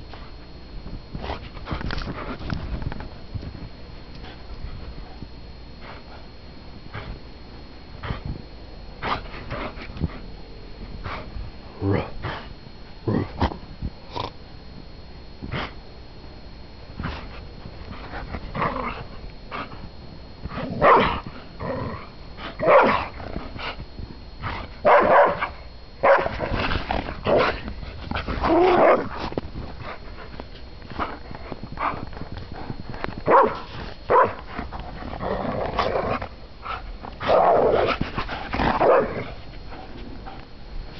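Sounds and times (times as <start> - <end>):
dogs barking and growling: 18.0 - 19.8, 20.5 - 23.8, 24.4 - 40.6.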